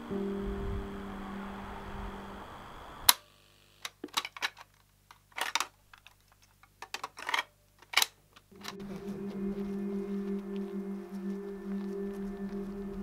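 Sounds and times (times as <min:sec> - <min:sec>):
held musical tones: 0:00.0 - 0:03.1, 0:08.5 - 0:13.0.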